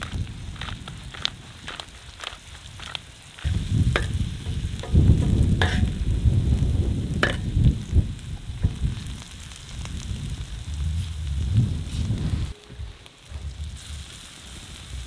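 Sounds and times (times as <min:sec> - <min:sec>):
vegetables frying in a pan: 0:00.0 - 0:12.2, 0:13.1 - 0:15.0
low rumble: 0:03.5 - 0:12.5
knife scraping metal pan: 0:05.6 - 0:06.0.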